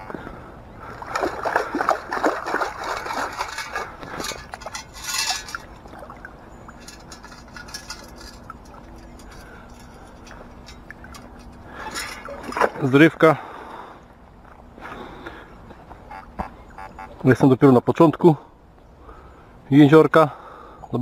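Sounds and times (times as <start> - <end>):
faint trickling: 0.2 - 15.4
water sloshing and splashing: 0.8 - 13.6.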